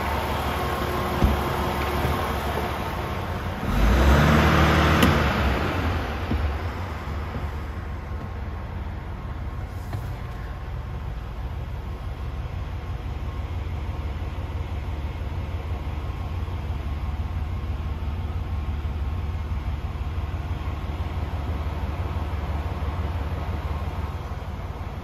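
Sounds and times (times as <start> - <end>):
truck diesel engine idling: 0.0 - 25.0.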